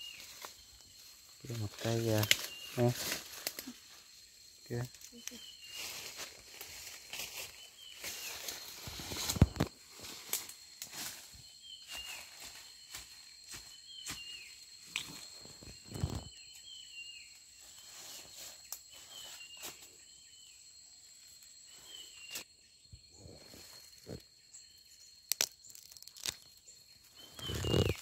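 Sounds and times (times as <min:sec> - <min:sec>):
high insect drone: 0:00.0 - 0:28.0
twigs snapping: 0:02.2 - 0:03.7, 0:25.2 - 0:26.6, 0:27.4 - 0:28.0.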